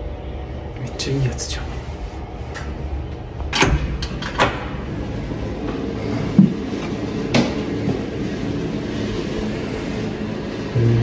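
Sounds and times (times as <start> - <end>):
steady low hum: 4.8 - 11.0.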